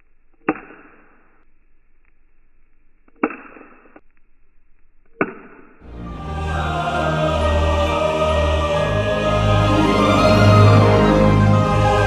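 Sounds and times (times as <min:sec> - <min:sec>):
music: 0:05.8 - 0:12.0.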